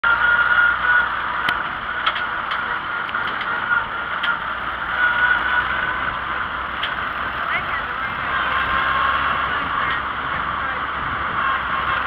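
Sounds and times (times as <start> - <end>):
tractor engine running: 0.0 - 12.0
ticks and rattles: 1.4 - 4.5.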